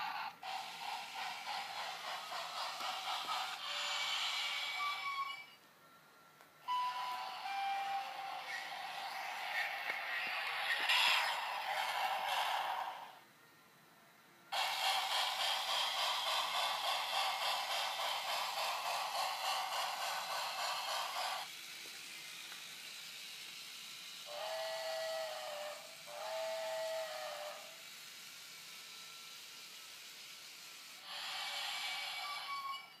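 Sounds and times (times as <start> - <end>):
toy train chuffing hiss: 0.0 - 6.0, 6.6 - 13.4, 14.5 - 33.0
toy train whistle toots: 2.5 - 5.6, 6.6 - 13.2, 24.2 - 27.9, 31.0 - 33.0.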